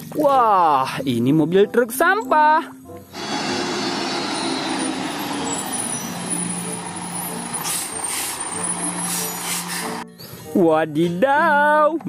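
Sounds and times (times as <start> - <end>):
diesel truck engine running: 3.1 - 10.0
air brakes hissing: 4.0 - 10.0.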